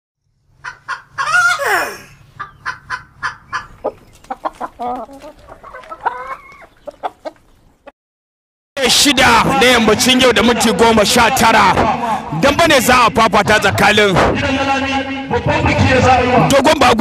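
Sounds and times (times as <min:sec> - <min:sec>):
chickens clucking: 0:00.6 - 0:07.9
rooster crowing: 0:01.2 - 0:02.0.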